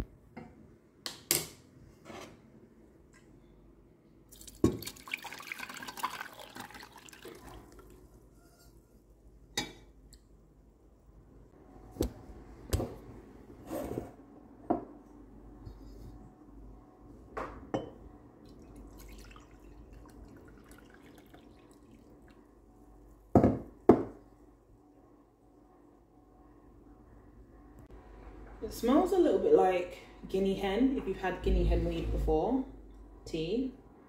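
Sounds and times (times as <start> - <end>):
tea pouring through strainer: 4.4 - 8.0, 18.5 - 22.4.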